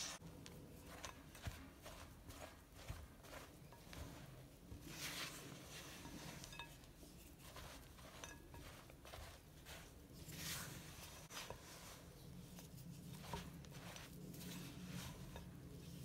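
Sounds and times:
spatula scraping glass bowl: 3.4s - 16.0s.

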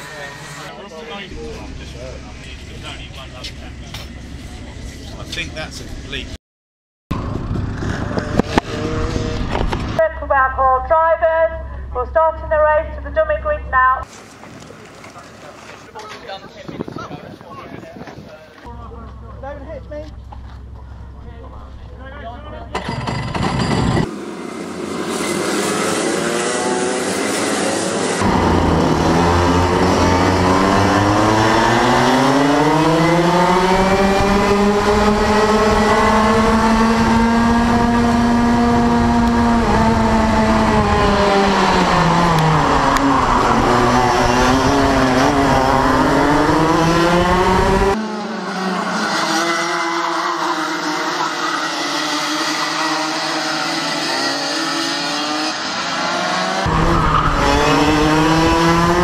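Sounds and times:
kart engine revving: 7.2s - 10.0s, 22.7s - 59.0s.

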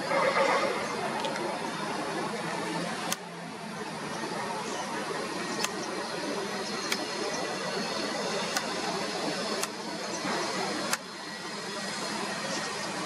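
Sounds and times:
sharp clicks: 5.6s - 5.9s, 6.8s - 7.2s, 8.5s - 8.8s, 9.5s - 9.8s, 10.8s - 11.1s.

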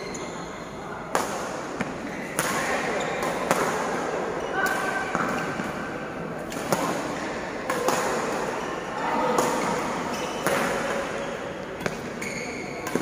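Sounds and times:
murmur of voices: 0.0s - 13.0s
racket striking shuttlecock: 1.1s - 4.0s, 6.4s - 8.6s, 9.3s - 11.2s, 12.8s - 13.0s.

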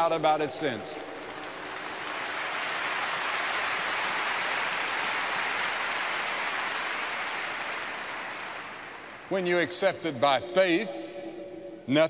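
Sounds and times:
crowd applauding: 0.8s - 9.5s.

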